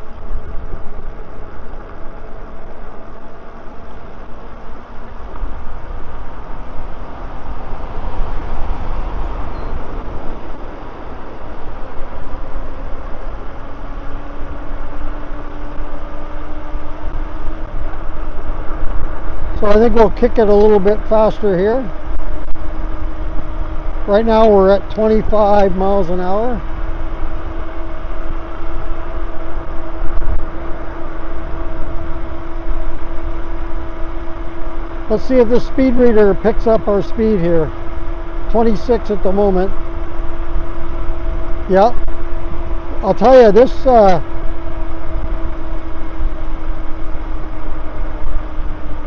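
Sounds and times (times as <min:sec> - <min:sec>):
e-bike road noise rumble: 0:00.0 - 0:49.0
faint rising whine: 0:00.0 - 0:49.0
wind buffeting microphone: 0:04.4 - 0:38.7.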